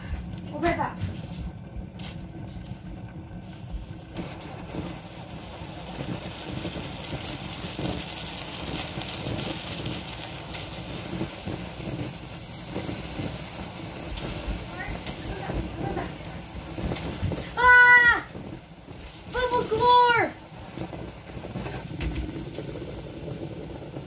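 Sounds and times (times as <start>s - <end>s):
steam hissing: 0.0s - 24.0s
water bubbling in pot: 0.0s - 24.0s.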